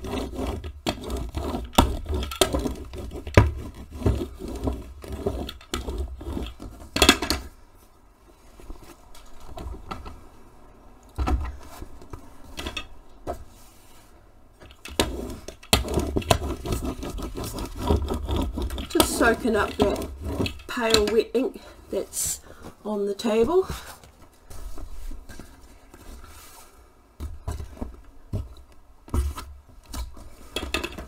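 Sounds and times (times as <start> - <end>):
ink roller rumbling over fabric: 14.8 - 23.9.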